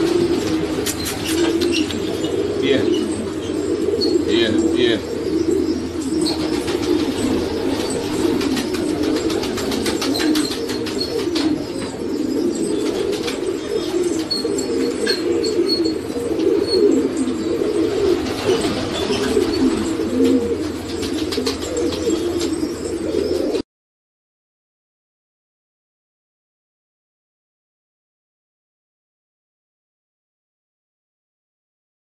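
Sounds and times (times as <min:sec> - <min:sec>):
wing flaps: 0:00.0 - 0:02.1, 0:06.3 - 0:12.0, 0:12.8 - 0:15.4, 0:17.9 - 0:22.6
pigeons cooing: 0:00.0 - 0:23.6.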